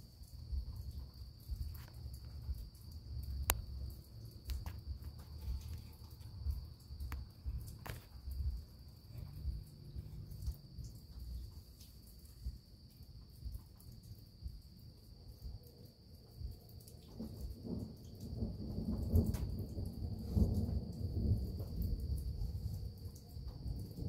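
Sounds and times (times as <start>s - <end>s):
crickets trilling: 0.0s - 24.0s
low uneven rumble: 0.1s - 13.7s, 18.4s - 24.0s.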